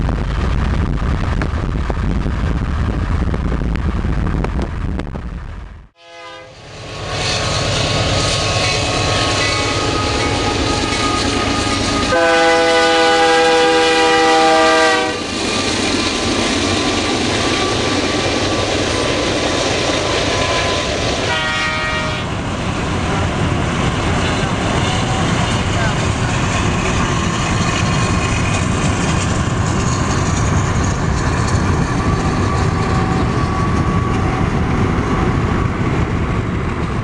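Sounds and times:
freight train rumbling past: 0:00.0 - 0:37.0
locomotive air horn: 0:06.0 - 0:07.5, 0:08.6 - 0:15.3, 0:20.3 - 0:22.3.

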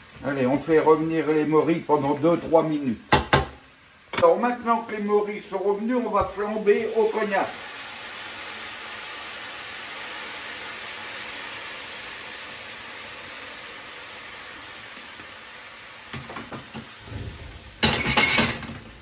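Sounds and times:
mushrooms sizzling in a frying pan: 0:00.0 - 0:19.0
liquor catching fire with a rush: 0:17.0 - 0:19.0.

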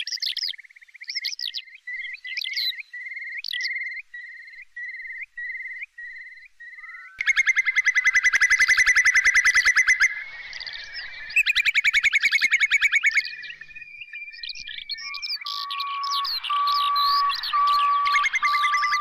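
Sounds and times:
bird tittering trill: 0:00.0 - 0:19.0
chirping bird calls: 0:00.0 - 0:19.0
lower whistled notes: 0:04.9 - 0:19.0.

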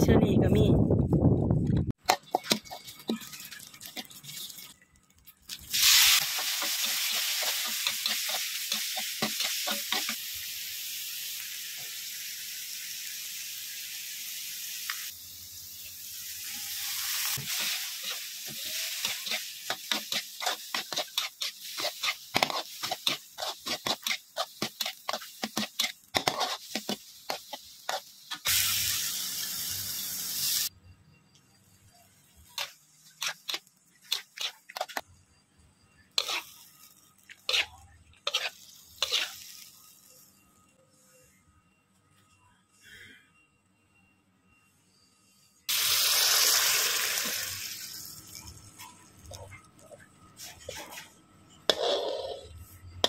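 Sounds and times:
metal spatula scraping wok: 0:02.1 - 0:04.7, 0:05.8 - 0:10.2, 0:16.4 - 0:28.7, 0:32.4 - 0:35.0, 0:36.1 - 0:39.6, 0:50.4 - 0:52.7
food sizzling in wok: 0:05.5 - 0:30.8, 0:31.6 - 0:35.0, 0:36.1 - 0:40.5, 0:45.7 - 0:48.6.

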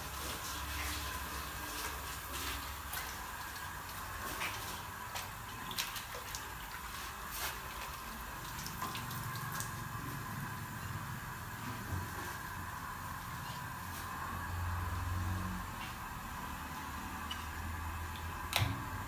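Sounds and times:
water streaming off cloth: 0:00.0 - 0:13.1
water sloshing in tub: 0:00.0 - 0:19.0
water dripping: 0:00.1 - 0:13.9, 0:14.7 - 0:19.0.

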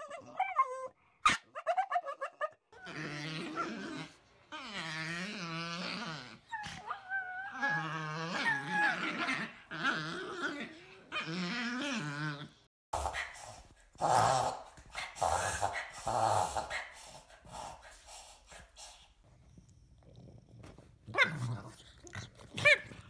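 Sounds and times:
dogs play-growling: 0:02.8 - 0:13.3, 0:14.0 - 0:17.0, 0:19.4 - 0:23.0.

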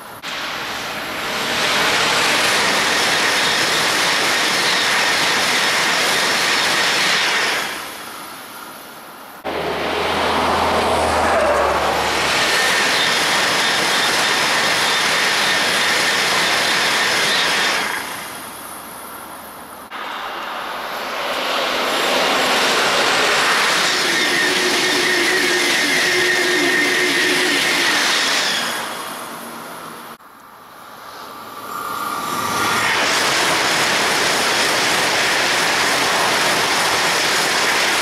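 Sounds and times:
high-speed train passing: 0:00.0 - 0:38.0
high whine: 0:09.4 - 0:13.5.

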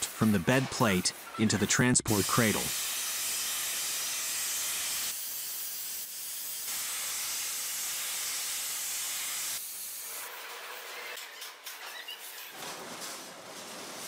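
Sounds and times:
compressed air hissing from hoists: 0:00.0 - 0:11.2.

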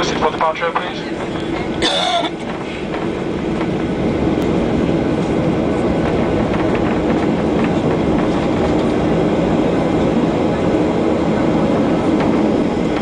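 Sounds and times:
jet engine cabin rumble: 0:00.0 - 0:13.0
wheels knocking on pavement joints: 0:00.6 - 0:09.8.

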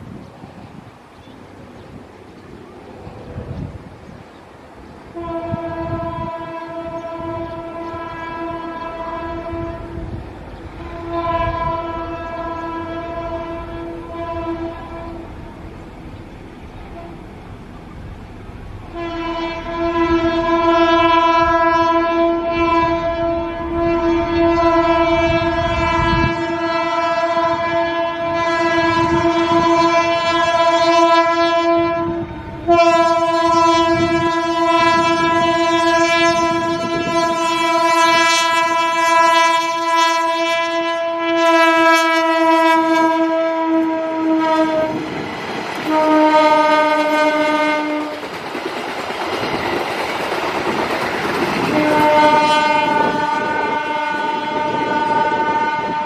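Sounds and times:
locomotive horn blasts: 0:05.1 - 0:15.6, 0:16.9 - 0:17.3, 0:18.8 - 0:45.2, 0:45.8 - 0:48.3, 0:51.6 - 0:56.0
train wheels clacking over rails: 0:44.7 - 0:53.6.

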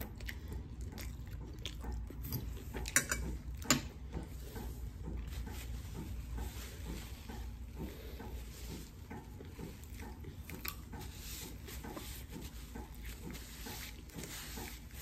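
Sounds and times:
person chewing food: 0:00.0 - 0:15.0.

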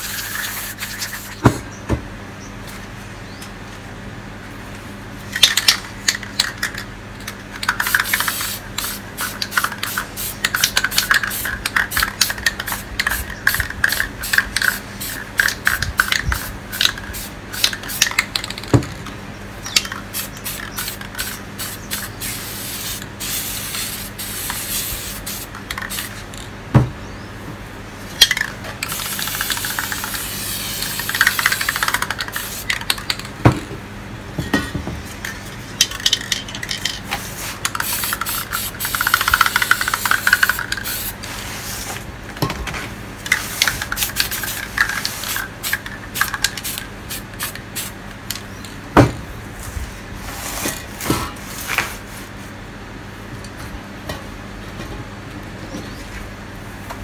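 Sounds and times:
spray paint can hissing: 0:00.0 - 0:01.4, 0:05.4 - 0:18.7, 0:19.8 - 0:26.2, 0:28.2 - 0:33.3, 0:35.9 - 0:41.9, 0:43.2 - 0:48.0.

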